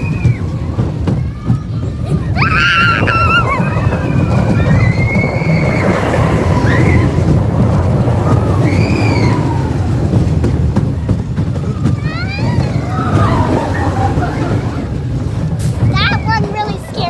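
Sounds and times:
roller coaster rumbling on track: 0:00.0 - 0:17.0
riders screaming: 0:02.2 - 0:07.3, 0:08.2 - 0:10.0.

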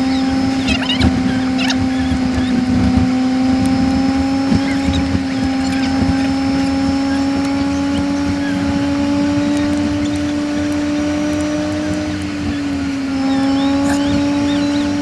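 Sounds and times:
faint high chirps: 0:00.0 - 0:02.6, 0:04.5 - 0:11.4, 0:12.5 - 0:15.0
sped-up engine high drone: 0:00.0 - 0:15.0.

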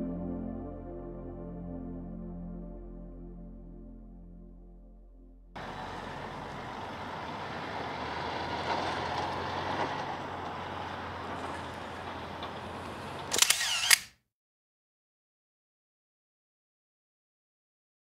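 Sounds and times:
outdoor background noise: 0:05.6 - 0:14.1.

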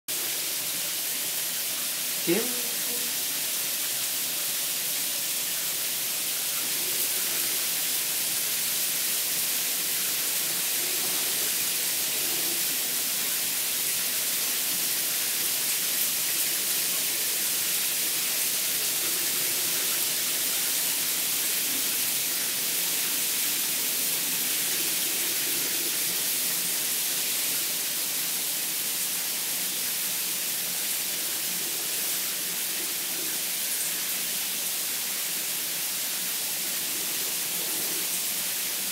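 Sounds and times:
shower water hissing on tiles: 0:00.1 - 0:38.9.

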